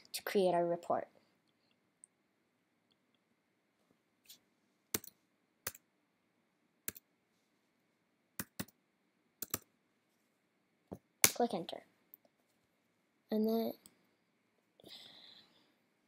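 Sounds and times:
keyboard and mouse clicking: 0:04.9 - 0:05.8, 0:08.4 - 0:08.8, 0:09.4 - 0:09.7.

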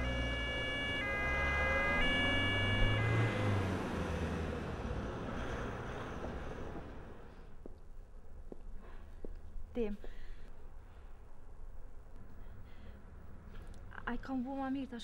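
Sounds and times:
ambulance two-tone siren: 0:00.0 - 0:04.1
vehicle rumble driving off: 0:00.0 - 0:07.4.

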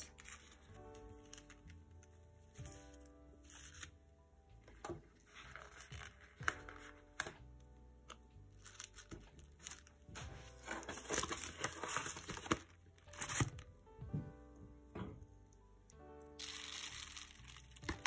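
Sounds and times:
paper and cardboard crinkling: 0:00.0 - 0:02.1, 0:04.7 - 0:07.4, 0:08.5 - 0:13.6, 0:16.4 - 0:18.0
soft background music: 0:00.0 - 0:18.0.

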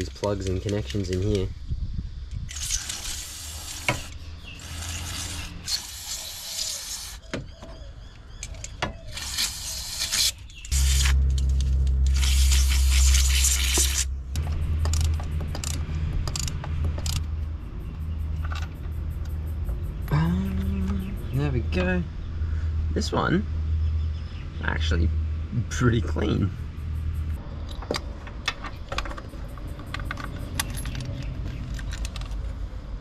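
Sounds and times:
steady low hum: 0:10.4 - 0:31.2.

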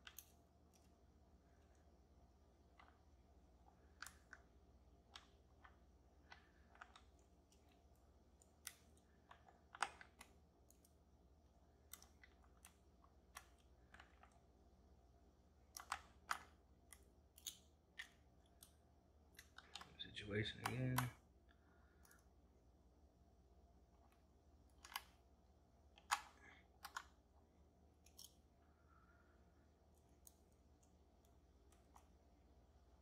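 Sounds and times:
faint low hum: 0:00.0 - 0:33.0.

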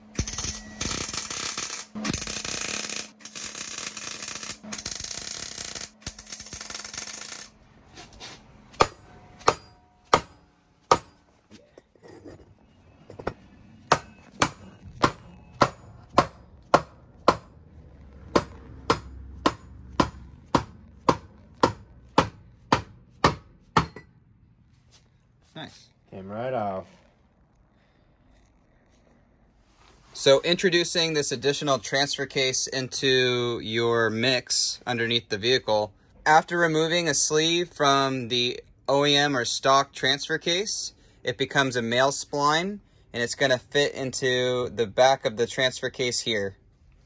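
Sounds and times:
hammer striking metal: 0:00.0 - 0:07.5, 0:08.7 - 0:11.4, 0:13.2 - 0:17.6, 0:18.3 - 0:24.2
welder crackling buzz: 0:00.0 - 0:07.6.

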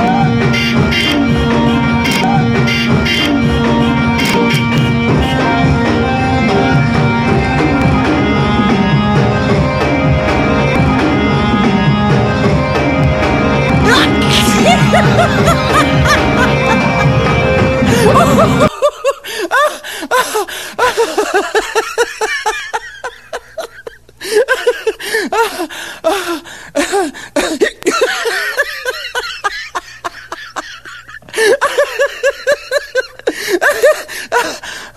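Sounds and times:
music: 0:00.0 - 0:18.7
laugh track: 0:13.6 - 0:26.2, 0:26.8 - 0:34.9.

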